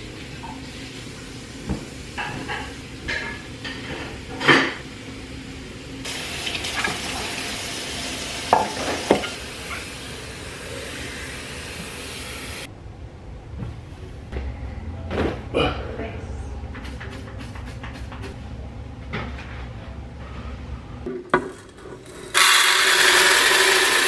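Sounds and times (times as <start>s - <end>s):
kitchen tap running into sink: 6.1s - 12.6s.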